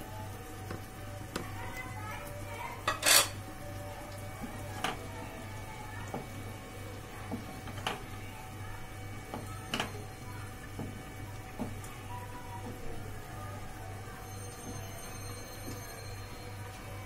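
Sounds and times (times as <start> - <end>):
spatula scraping a pan: 2.9 - 3.4.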